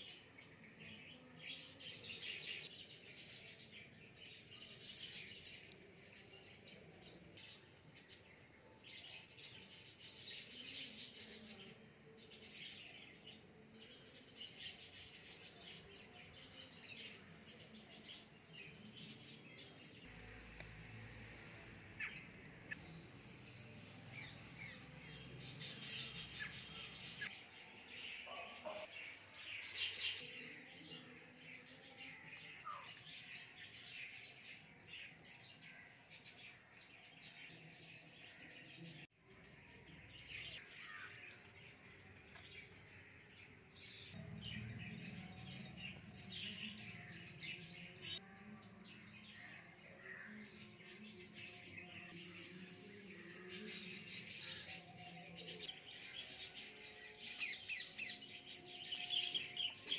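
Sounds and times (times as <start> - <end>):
birds chirping and calling: 21.8 - 39.1, 40.1 - 59.9.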